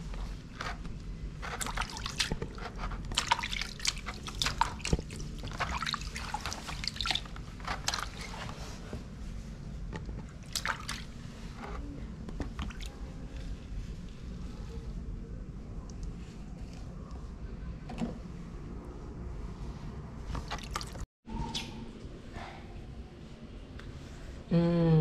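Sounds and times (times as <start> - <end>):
water splashing in a washbasin: 1.4 - 8.7, 10.0 - 11.7, 12.4 - 13.4, 20.3 - 21.1.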